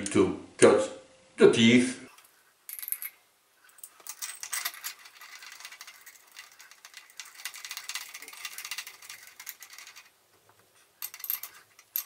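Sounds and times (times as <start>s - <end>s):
metal parts clinking and scraping: 2.2s - 10.2s, 11.0s - 12.0s.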